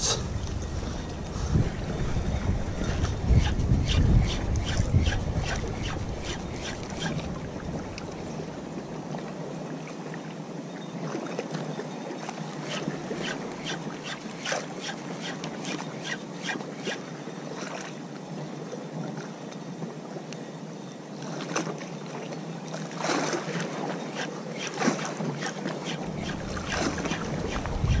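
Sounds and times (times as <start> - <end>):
wind buffeting microphone: 0.0 - 9.0, 25.1 - 28.0
wind: 0.0 - 28.0
water lapping and splashing: 0.3 - 19.4, 21.2 - 28.0.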